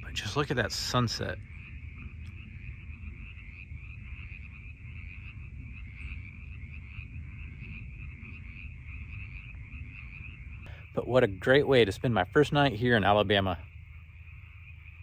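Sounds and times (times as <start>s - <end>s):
low rumble: 0.0s - 11.0s
frogs trilling: 0.0s - 15.0s.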